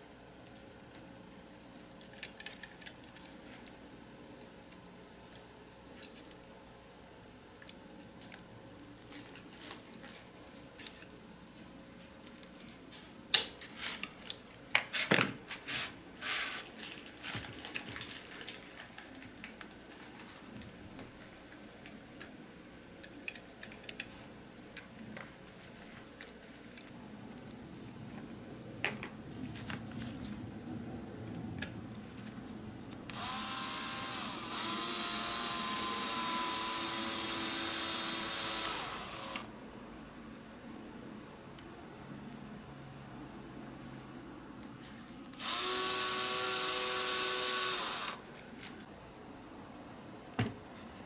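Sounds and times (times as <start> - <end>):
cordless drill running: 33.1 - 39.5, 45.4 - 48.2.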